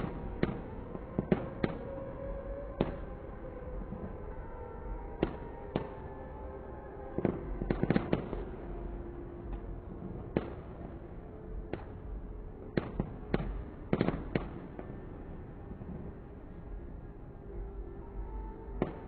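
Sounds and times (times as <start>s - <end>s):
fireworks bangs: 7.2s - 8.6s.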